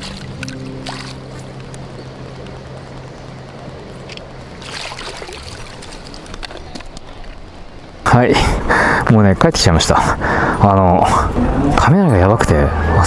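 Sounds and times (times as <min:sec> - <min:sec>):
fish thrashing and splashing water: 0:00.0 - 0:01.4, 0:04.6 - 0:06.3.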